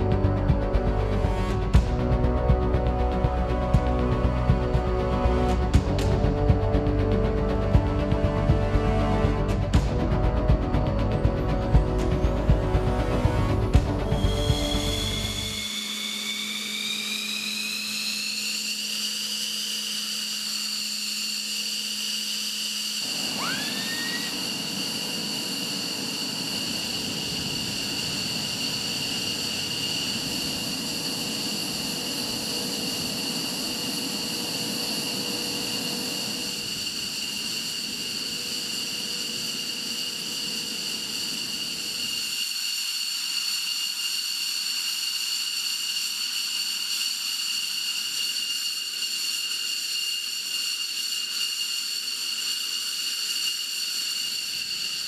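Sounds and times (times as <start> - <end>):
steady rushing noise: 0.0 - 15.8, 23.0 - 41.8
low hum: 0.0 - 37.1
jet engines whining: 0.0 - 55.0
whine sweeping up in pitch: 0.0 - 55.0.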